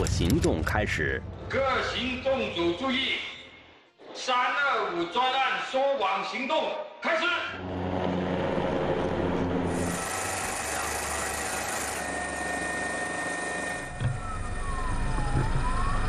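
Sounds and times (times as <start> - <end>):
helicopter rotor and turbine whine: 7.6 - 16.0.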